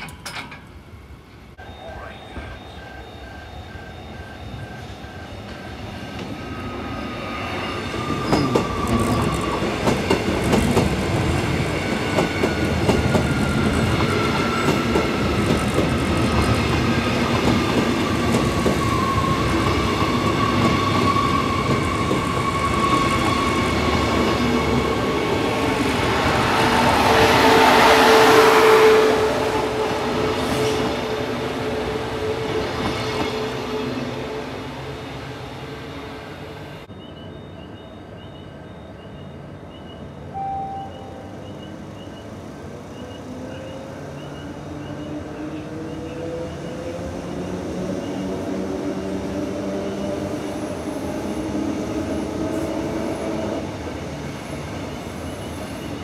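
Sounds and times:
train passing: 0.0 - 56.0.

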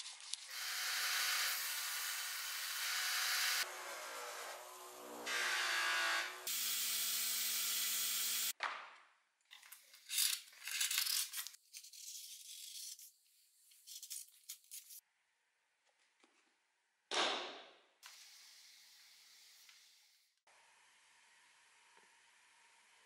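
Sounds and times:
bench grinder running: 0.5 - 6.9.

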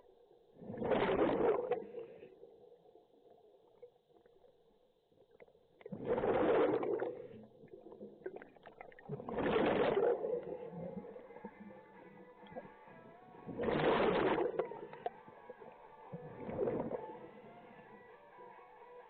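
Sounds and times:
underwater bubbling exhalation: 0.6 - 2.3, 5.8 - 12.6, 13.5 - 15.1, 16.2 - 17.3.

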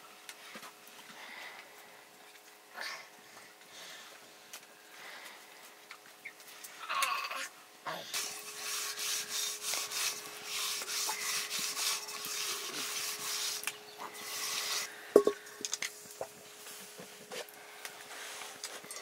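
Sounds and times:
hand rubbing mud on pot: 8.2 - 14.9
pot clunking on hearth: 15.2 - 15.5.

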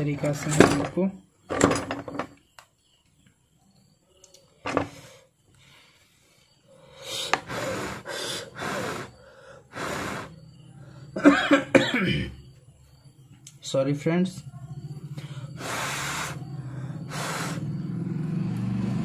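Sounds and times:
puffs of breath on microphone: 6.9 - 10.4, 15.2 - 17.7.

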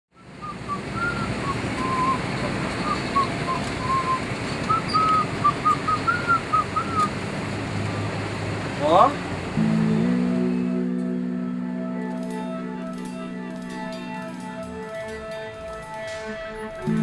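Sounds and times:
person whistling a tune: 0.4 - 2.2, 2.8 - 7.1.

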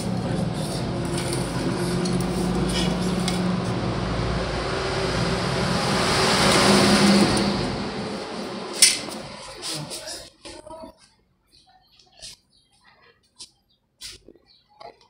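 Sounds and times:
motor humming: 0.0 - 10.1.

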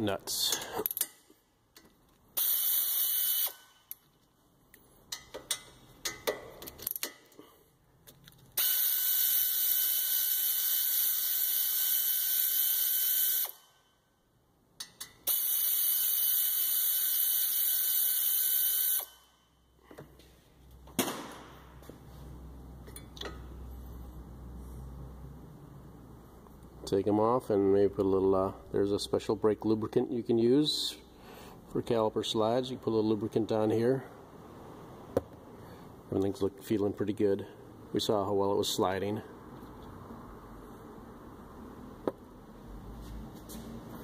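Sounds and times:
clicks of tool and bolts: 0.4 - 2.3, 3.9 - 7.4, 8.0 - 8.6, 14.8 - 15.3, 22.8 - 23.5
pneumatic air ratchet running: 2.4 - 4.0, 8.6 - 13.7, 15.2 - 19.3.

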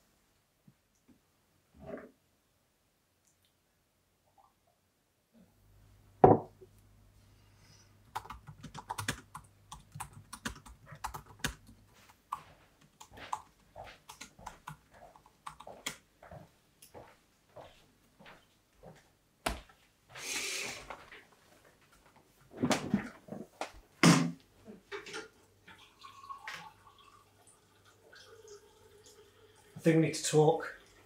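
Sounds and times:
loud knock: 6.2 - 6.5
typing on laptop keyboard: 8.1 - 16.0.

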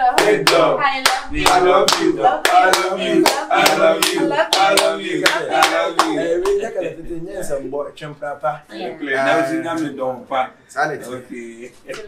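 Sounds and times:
hands clapping: 0.2 - 6.7, 11.8 - 12.0
people laughing: 3.0 - 7.3
people talking excitedly: 8.7 - 10.3.

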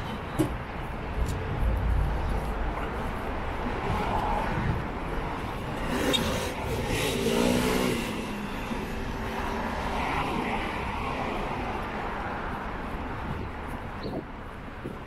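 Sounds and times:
engine rumble: 0.0 - 9.5.

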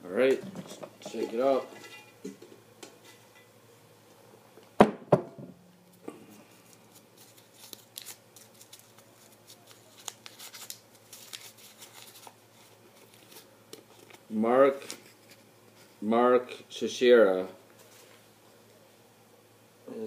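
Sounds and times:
paper crinkling: 6.4 - 16.0.

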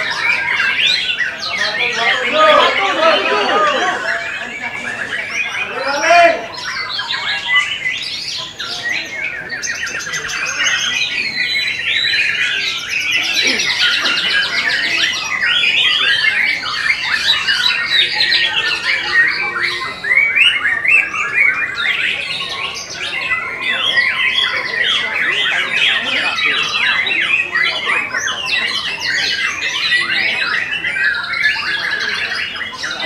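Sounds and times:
bird singing rapid chirps and trills: 0.0 - 33.0.

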